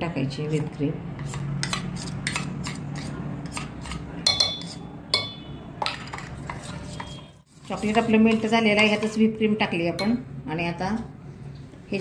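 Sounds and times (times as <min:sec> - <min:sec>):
spoon scraping steel bowl: 0:00.5 - 0:09.3.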